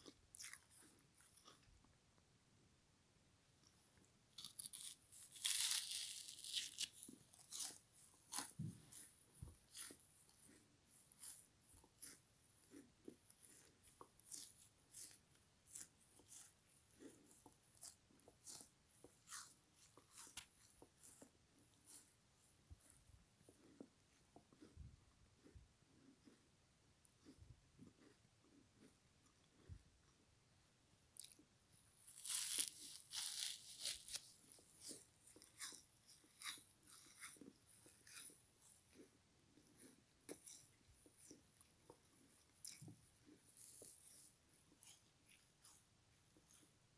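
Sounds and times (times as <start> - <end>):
frozen sponge crunching: 4.4 - 22.1, 32.0 - 45.8.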